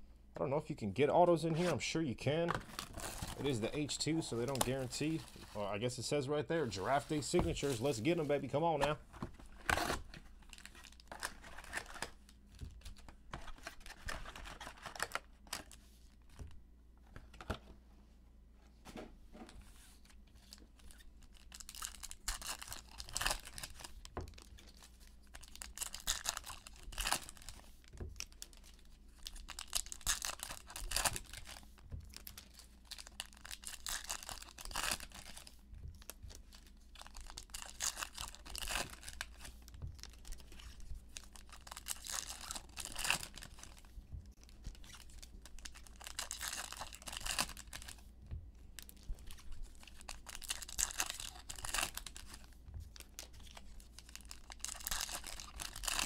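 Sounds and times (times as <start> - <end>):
cards being handled: 2.5 - 5.6, 6.6 - 17.7
foil wrappers tearing and crinkling: 20.4 - 27.6, 28.2 - 48.0, 48.8 - 56.0.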